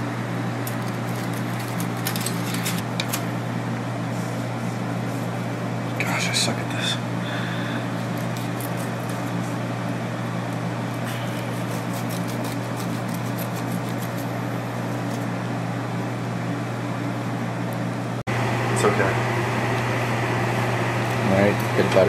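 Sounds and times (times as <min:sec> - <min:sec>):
low electrical hum: 0:00.0 - 0:22.0
knife cutting fish fillet: 0:11.0 - 0:14.3.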